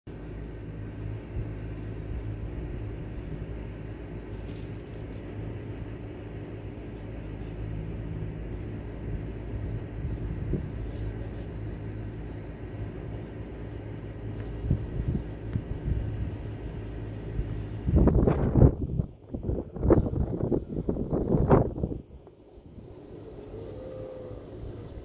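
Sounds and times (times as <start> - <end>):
engine idling: 0.1 - 25.0.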